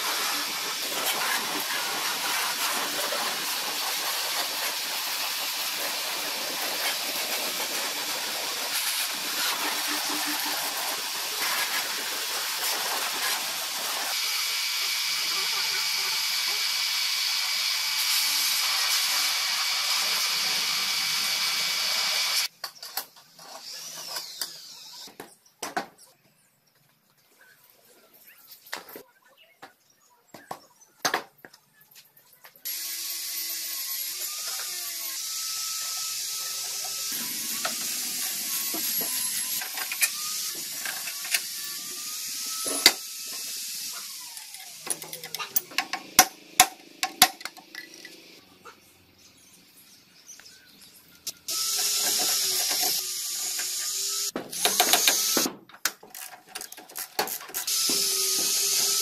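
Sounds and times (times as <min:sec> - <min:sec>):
ratchet wrench clicking: 0:37.6 - 0:43.5, 0:51.5 - 0:55.5.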